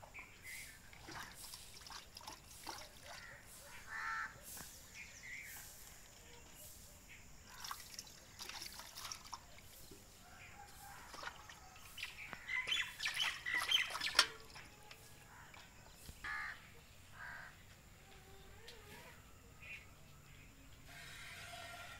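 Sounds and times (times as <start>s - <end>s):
milk squirting into metal pail: 0.9s - 3.3s, 7.5s - 9.5s, 11.1s - 15.6s.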